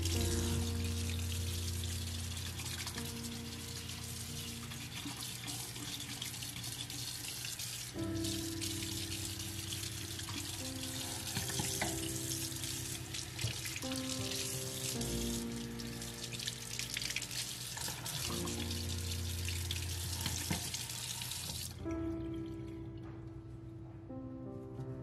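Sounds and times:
background music: 0:00.0 - 0:25.0
tap water splashing into sink: 0:13.3 - 0:14.4, 0:16.3 - 0:21.9.

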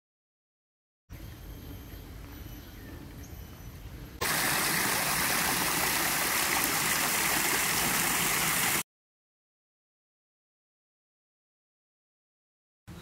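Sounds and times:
fountain water splashing into basin: 0:04.2 - 0:08.8.

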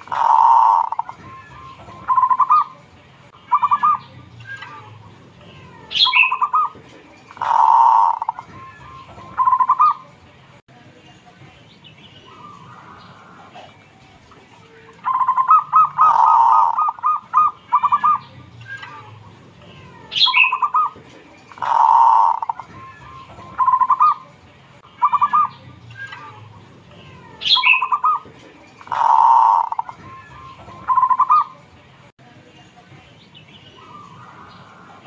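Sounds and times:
dove cooing: 0:00.0 - 0:01.2, 0:02.0 - 0:02.7, 0:07.4 - 0:08.5, 0:09.2 - 0:10.0, 0:15.0 - 0:18.2, 0:20.2 - 0:22.7, 0:28.8 - 0:30.0.

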